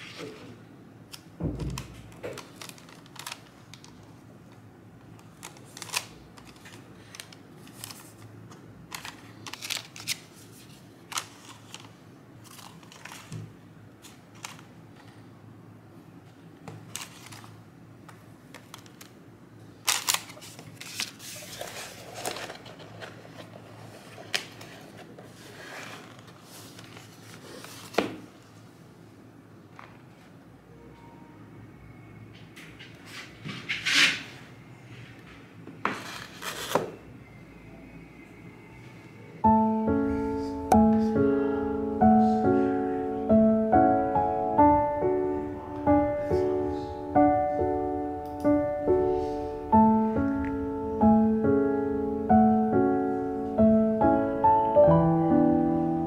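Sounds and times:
tissue paper rustling: 0:20.0 - 0:28.0.

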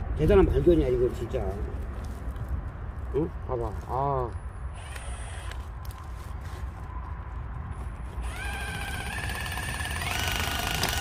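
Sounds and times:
cordless drill motor whine: 0:04.7 - 0:05.7, 0:08.0 - 0:11.0.

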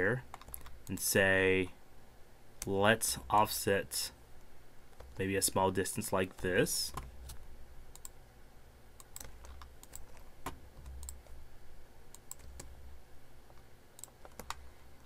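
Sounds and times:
faint low hum: 0:00.0 - 0:15.0
mouse clicks: 0:06.9 - 0:08.2, 0:12.1 - 0:12.7.

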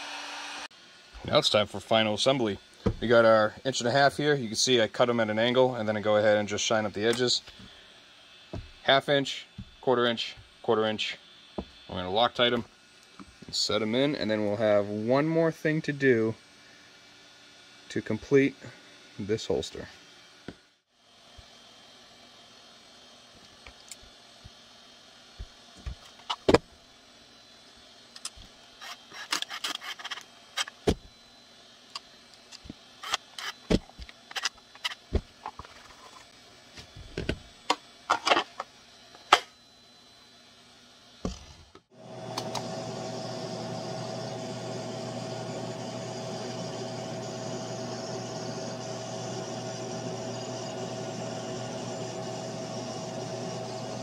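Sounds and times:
laser engraver humming: 0:38.8 - 0:54.0.

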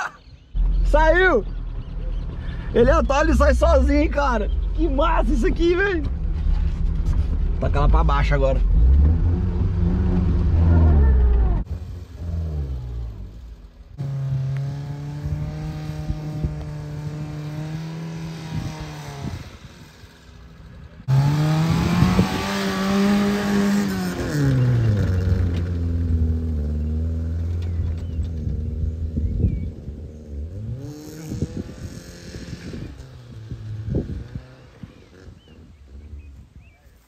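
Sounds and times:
car engine revving hard: 0:08.6 - 0:19.9, 0:21.0 - 0:27.5, 0:30.4 - 0:35.5.

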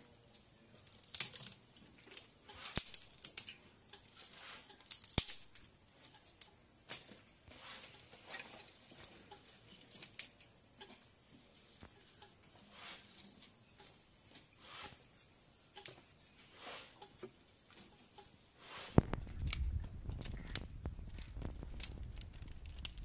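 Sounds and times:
firewood crackling and rustling: 0:00.2 - 0:23.0
sticks snapping: 0:01.0 - 0:01.6, 0:02.6 - 0:03.5, 0:04.9 - 0:05.6, 0:19.0 - 0:23.0.

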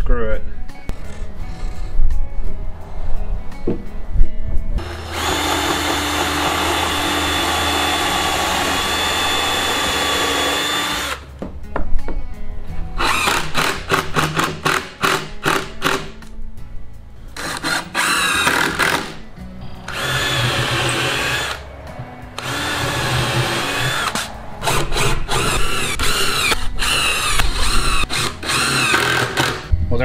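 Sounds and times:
cordless drill driving screws into wood: 0:04.8 - 0:11.3, 0:13.0 - 0:16.2, 0:17.4 - 0:19.2, 0:19.9 - 0:21.6, 0:22.4 - 0:29.7.

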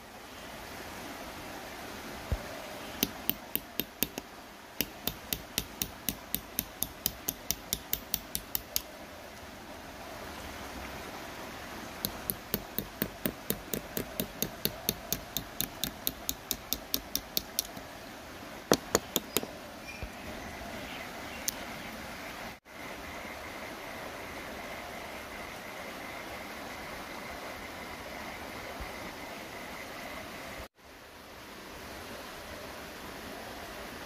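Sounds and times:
small hammer tapping knife blade: 0:03.0 - 0:04.2, 0:04.8 - 0:08.9, 0:12.0 - 0:17.8.

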